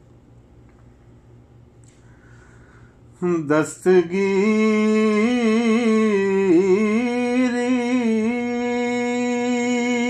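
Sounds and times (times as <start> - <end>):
person singing devotional song: 3.2 - 10.0.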